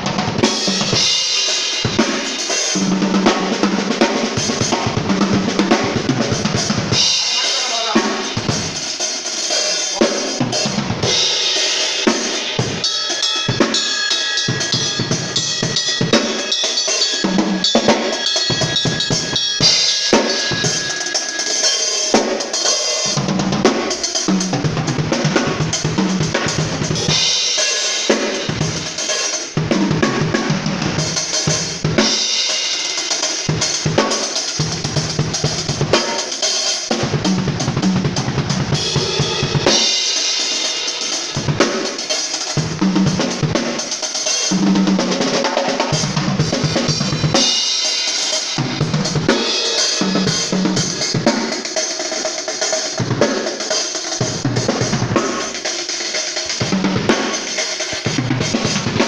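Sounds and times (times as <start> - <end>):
drum kit playing: 0.0 - 59.0
cymbals ringing: 5.8 - 29.5, 38.6 - 53.0.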